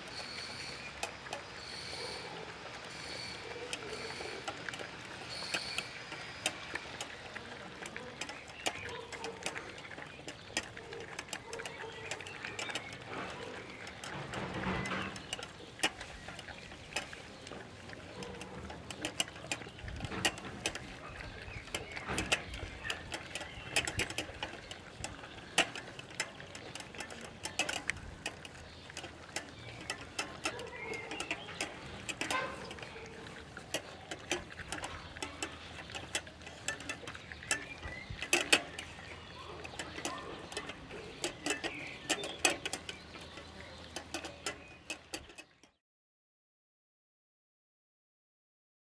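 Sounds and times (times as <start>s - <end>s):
puppies chewing: 0.0s - 45.8s
puppies eating from metal bowls: 0.0s - 45.8s.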